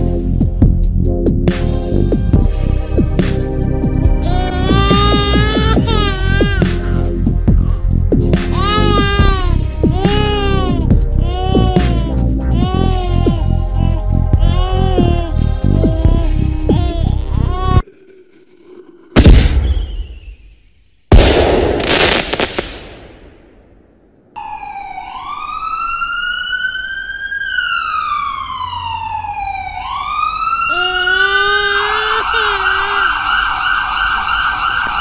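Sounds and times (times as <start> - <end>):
low wavering cry: 4.2 - 19.2
emergency siren wailing: 4.4 - 6.7, 24.4 - 35.0.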